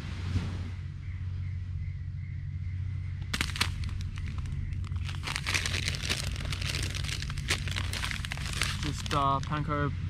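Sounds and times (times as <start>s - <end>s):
low rumble: 0.0s - 10.0s
plastic packet crinkling: 3.3s - 9.6s.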